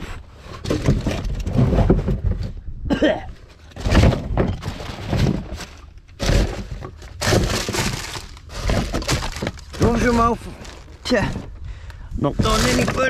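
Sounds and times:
cans and containers clattering: 0:03.5 - 0:11.4.

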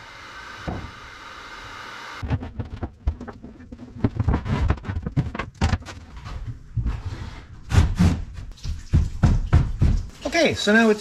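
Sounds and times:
wooden knocks and thumps: 0:02.2 - 0:07.0, 0:07.7 - 0:10.1
wood sliding scrapes: 0:02.2 - 0:08.3.

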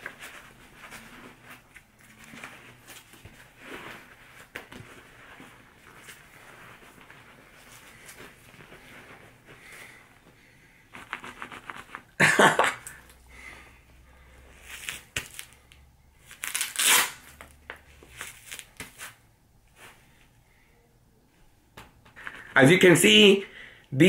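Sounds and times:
boxing glove rubbing and scuffing: 0:00.0 - 0:12.2, 0:14.5 - 0:20.2.

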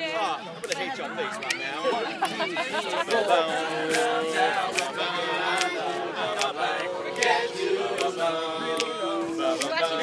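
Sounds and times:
men singing backing harmonies: 0:02.8 - 0:10.0
sharp clicks keeping a beat: 0:03.8 - 0:09.8.

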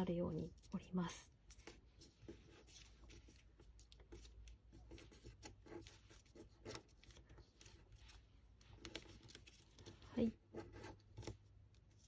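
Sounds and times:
paper rustling while folded: 0:00.3 - 0:12.0.

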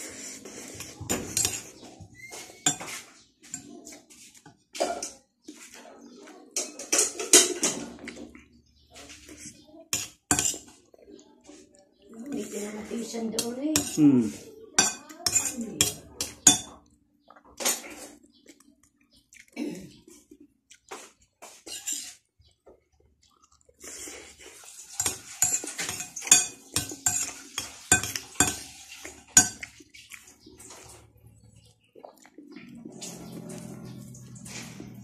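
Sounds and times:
fork scraping a ceramic bowl: 0:00.0 - 0:05.7, 0:08.8 - 0:10.8, 0:13.4 - 0:16.7, 0:21.5 - 0:22.2, 0:23.8 - 0:30.9.

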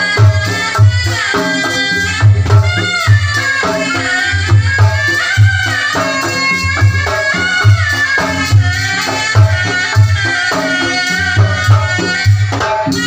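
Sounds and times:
hand drum strokes with bass beats: 0:00.0 - 0:13.0
shawm playing ornamented melody: 0:00.0 - 0:13.0.

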